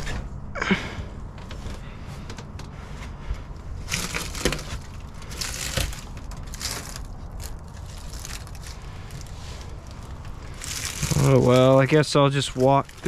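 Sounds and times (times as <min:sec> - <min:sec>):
leaves and twigs crunching underfoot: 0:03.9 - 0:13.0.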